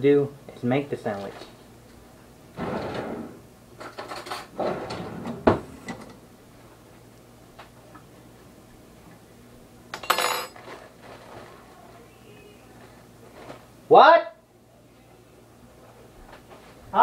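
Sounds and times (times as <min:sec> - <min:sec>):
kitchen clatter: 0:02.5 - 0:06.2, 0:09.9 - 0:11.7.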